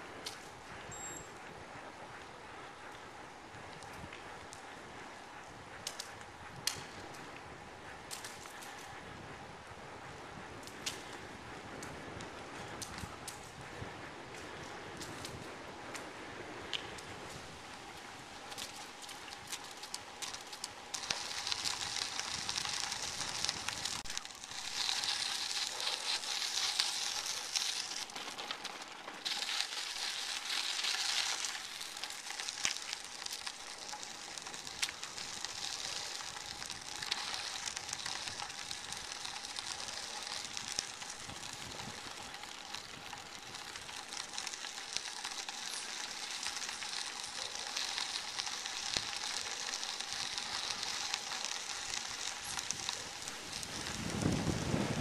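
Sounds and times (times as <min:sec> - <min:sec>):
bicycle tyres rolling on gravel: 0:00.0 - 0:55.0
loose stones ticking: 0:16.7 - 0:54.6.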